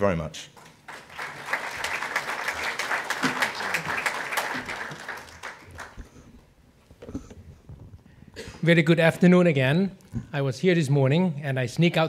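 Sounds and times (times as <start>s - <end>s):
audience applauding: 0.6s - 6.1s.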